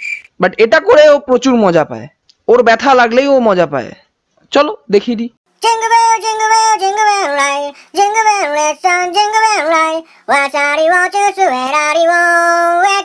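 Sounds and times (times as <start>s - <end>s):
high-pitched singing voice: 5.5s - 13.0s.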